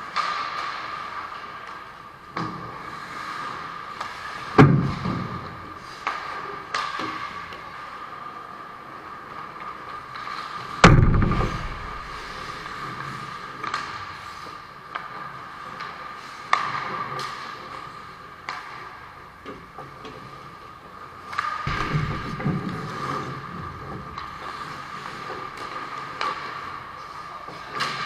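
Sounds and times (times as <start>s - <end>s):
skates scraping ice: 0.0s - 10.8s, 11.4s - 28.0s
hockey sticks and puck clacking: 0.0s - 28.0s
steady hum: 10.8s - 12.9s.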